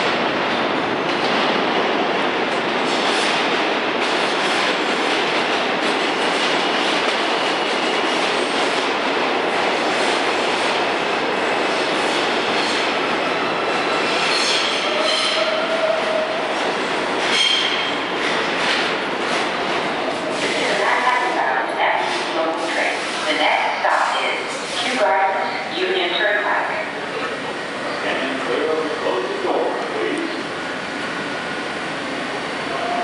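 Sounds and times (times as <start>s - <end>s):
subway train wheels rumbling: 0.0s - 33.0s
train brakes squealing: 13.9s - 16.3s, 17.3s - 17.9s.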